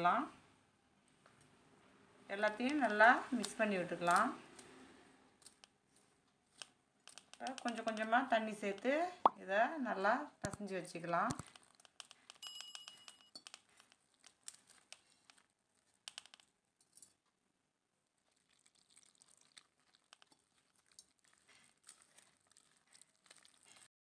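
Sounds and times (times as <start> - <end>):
hand mixing dough in a bowl: 2.3 - 9.1, 11.0 - 12.4, 13.4 - 23.9.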